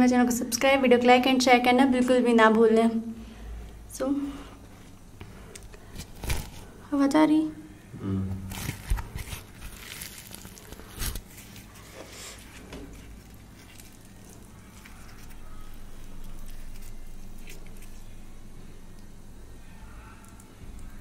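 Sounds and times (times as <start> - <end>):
low steady hum: 0.0 - 21.0
tearing and squishing food: 5.5 - 6.8, 8.4 - 19.1
chewing crisp fried bread: 8.5 - 18.5.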